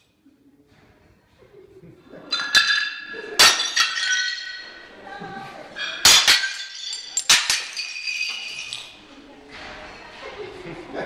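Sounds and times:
shards clinking: 2.3 - 4.9, 5.8 - 9.0
tiles smashing on concrete: 2.3 - 4.9, 5.8 - 9.0.

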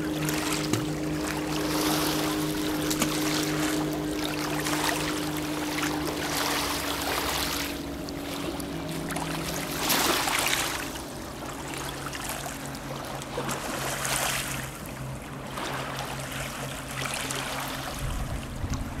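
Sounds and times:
steady low hum: 0.0 - 19.0
small waves on pebble shore: 8.3 - 10.8.

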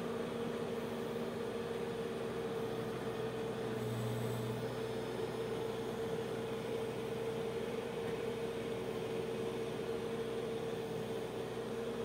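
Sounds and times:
backhoe engine drone: 0.0 - 12.0
mid-pitched whine: 3.8 - 5.0.

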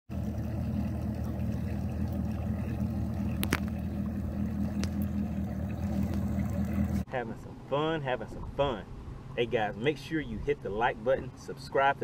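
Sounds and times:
outboard motor idling: 0.1 - 7.1.

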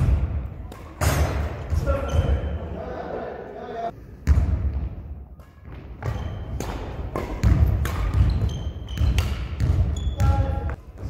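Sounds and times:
racket hitting shuttlecock: 0.0 - 1.7, 5.3 - 10.4.

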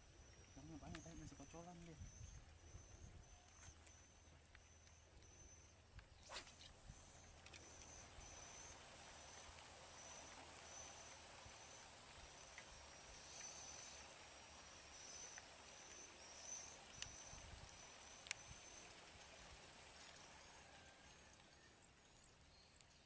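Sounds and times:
insects chirping: 0.0 - 20.9
light rain on water: 7.2 - 23.0.

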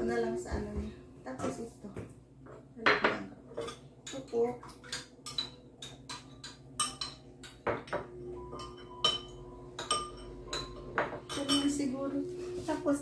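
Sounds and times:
metal spoon clinking ceramic bowl: 3.6 - 11.8.

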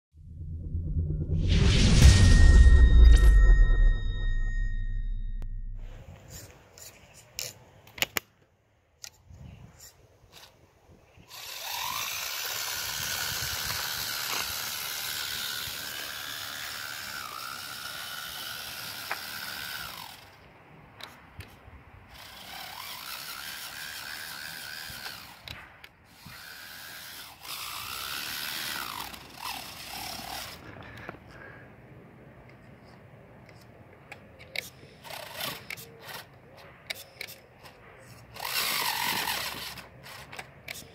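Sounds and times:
toy truck motor gear whine: 11.2 - 31.1, 34.4 - 40.9.

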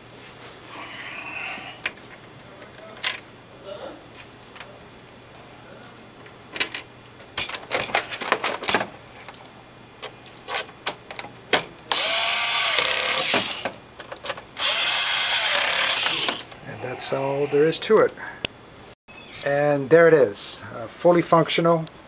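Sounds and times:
clicks and knocks of parts handled: 1.8 - 3.3, 6.5 - 11.7, 13.1 - 14.5
electric screwdriver driving screws: 11.9 - 13.7, 14.6 - 16.5.

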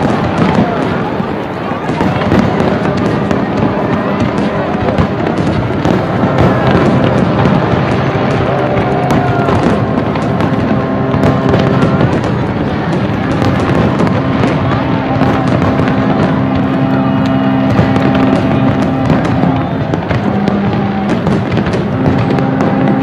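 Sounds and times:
fireworks bursting: 0.0 - 23.0.

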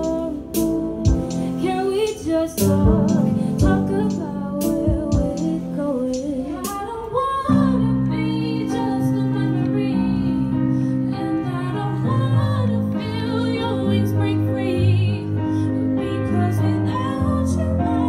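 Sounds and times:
live band with steady beat: 0.0 - 7.0
woman singing into a microphone: 0.0 - 18.0.

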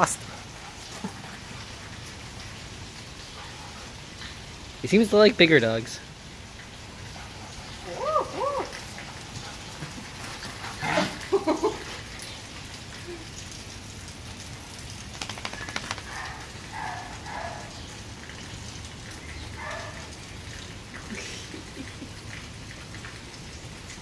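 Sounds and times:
dogs barking while playing: 8.6 - 11.7, 15.5 - 18.2, 19.4 - 20.4
dog yipping: 19.6 - 20.0.

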